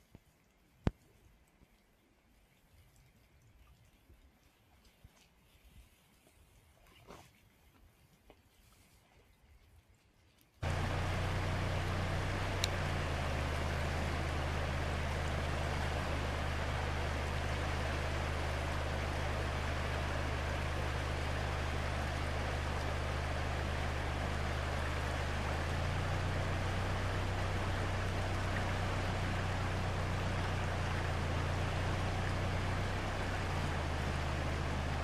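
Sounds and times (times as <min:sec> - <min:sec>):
river flowing: 0:10.6 - 0:35.0
steady low hum: 0:10.6 - 0:35.0.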